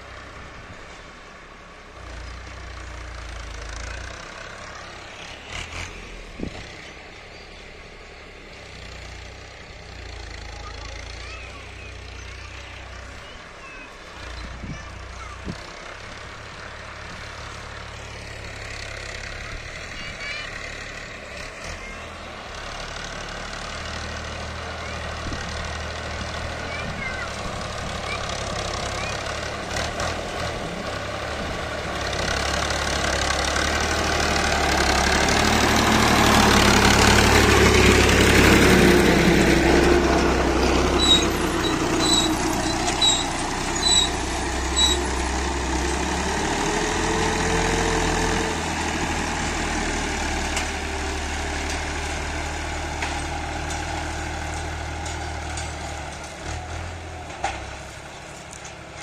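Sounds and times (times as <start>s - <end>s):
tractor engine under load: 0.0s - 59.0s.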